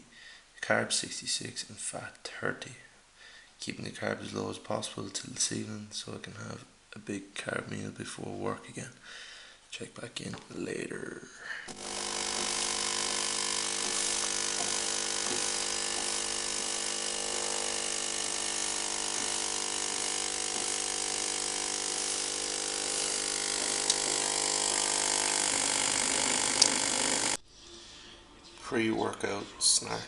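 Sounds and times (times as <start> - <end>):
espresso machine pump buzzing: 11.7 - 27.4.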